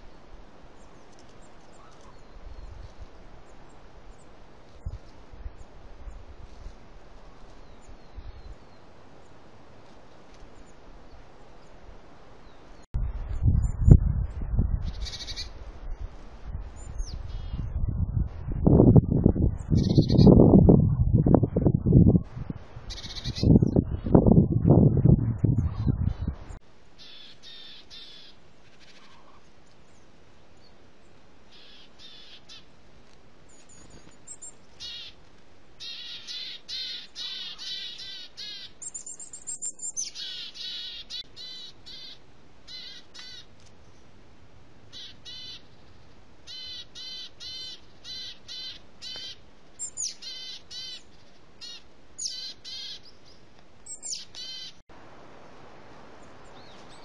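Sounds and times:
birds harsh calls: 0:19.7 - 0:20.4, 0:22.9 - 0:23.6, 0:27.0 - 0:29.5, 0:31.5 - 0:32.7, 0:33.6 - 0:35.2, 0:35.8 - 0:44.0, 0:44.9 - 0:54.8
faint steady hiss: 0:53.1 - 0:57.0.

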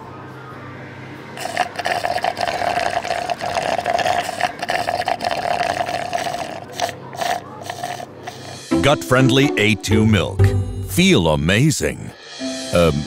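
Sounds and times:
slurping through a straw: 0:01.4 - 0:08.6.

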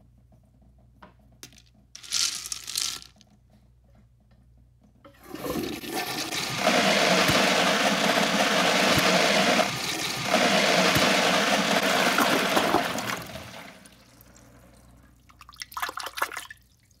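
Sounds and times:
toilet flushing: 0:05.1 - 0:16.6.

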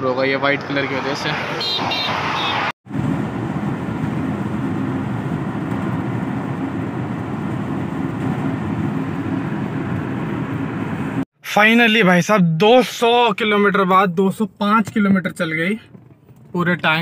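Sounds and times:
car cabin road rumble: 0:02.9 - 0:11.2.

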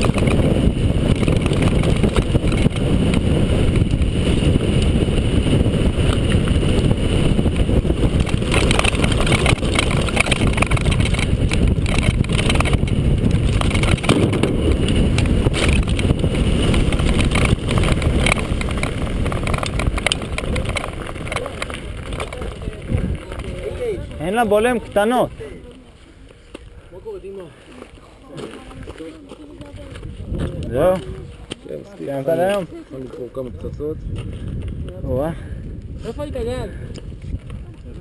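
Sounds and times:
bike rattling: 0:00.0 - 0:38.0
wind buffeting microphone: 0:00.0 - 0:38.0
tyres crunching over stones: 0:07.6 - 0:26.8, 0:27.4 - 0:33.4.

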